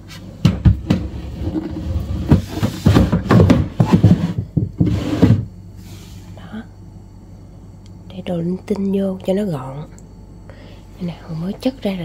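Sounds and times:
boxes knocking and clattering: 0.4 - 5.5.

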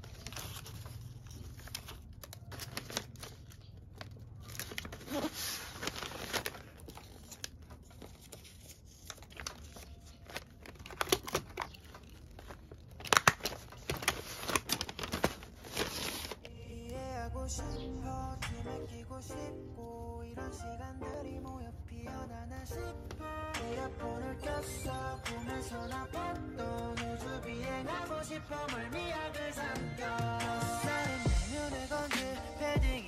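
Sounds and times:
paper crinkling and rustling: 0.0 - 16.8
music with singing: 16.5 - 33.0.

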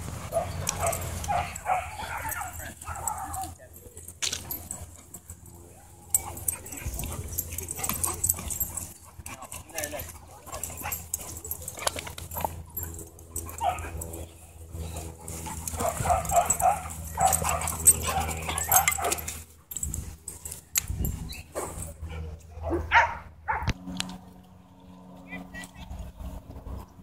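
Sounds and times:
dogs making play noises: 0.0 - 25.2
dogs barking: 0.2 - 3.6, 6.0 - 14.3, 14.9 - 19.4, 22.6 - 23.8.

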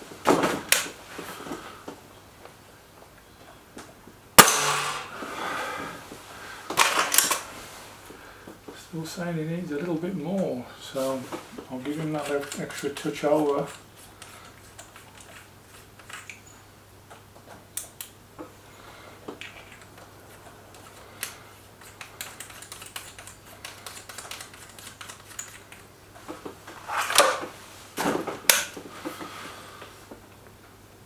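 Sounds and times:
air rifle clicks and handling: 0.7 - 1.0, 6.7 - 7.5, 11.8 - 16.5, 20.7 - 25.9, 27.0 - 27.5, 28.5 - 29.2
rasping handling sounds: 9.7 - 16.5, 19.4 - 27.6.

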